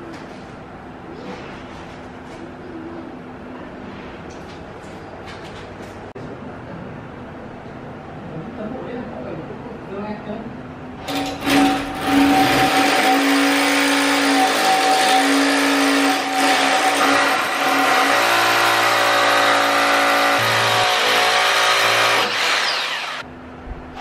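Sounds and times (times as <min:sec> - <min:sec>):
electric drill boring into wall: 0:11.0 - 0:23.2.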